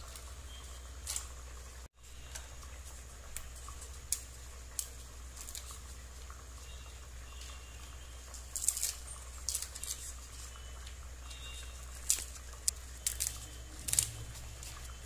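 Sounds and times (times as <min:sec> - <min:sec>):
papadums crackling as broken: 0:02.3 - 0:06.4, 0:07.3 - 0:15.0.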